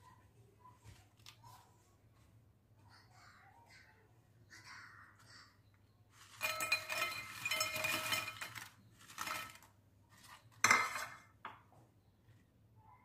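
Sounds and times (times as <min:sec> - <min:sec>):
fried snacks clattering into a bowl: 0:06.2 - 0:11.4
crockery clacking: 0:06.3 - 0:09.7.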